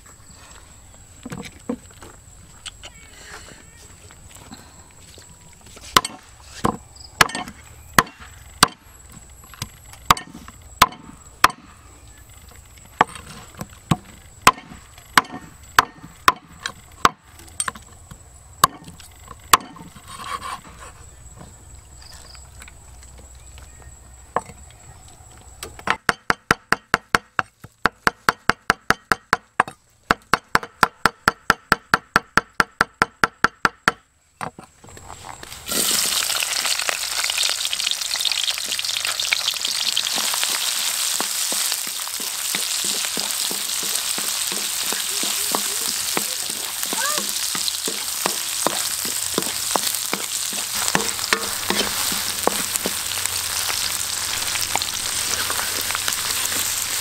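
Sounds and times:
knife chopping on wooden board: 0:46.8 - 0:53.0.

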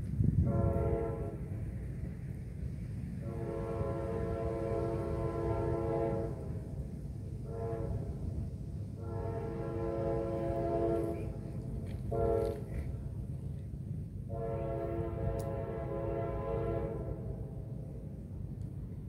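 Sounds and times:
locomotive air horn blasts: 0:00.4 - 0:01.6, 0:03.2 - 0:06.7, 0:07.4 - 0:08.4, 0:09.0 - 0:12.9, 0:14.3 - 0:17.4.

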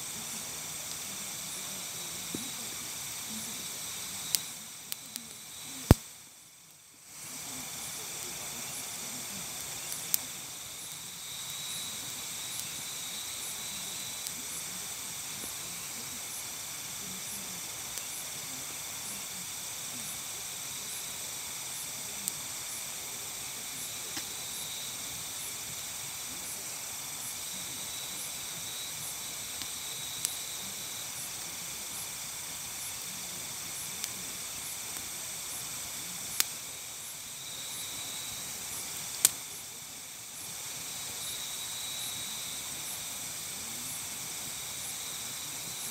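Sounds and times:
crickets and insects chorus: 0:00.0 - 0:45.9
campfire pops and cracks: 0:00.8 - 0:06.2, 0:07.4 - 0:14.5, 0:23.5 - 0:24.7, 0:27.4 - 0:36.9, 0:37.5 - 0:39.6.

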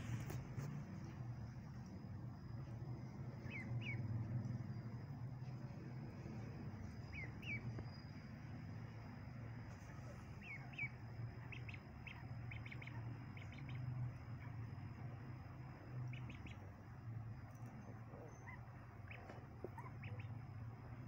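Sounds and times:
low steady hum: 0:00.0 - 0:21.0
ducklings peeping: 0:03.3 - 0:04.3, 0:06.8 - 0:08.0, 0:09.7 - 0:15.0, 0:15.6 - 0:21.0.

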